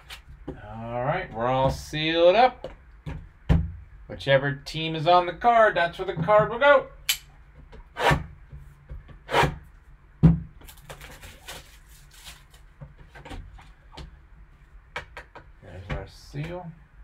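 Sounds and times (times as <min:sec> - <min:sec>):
plastic wrapping crinkling: 0:10.6 - 0:12.7.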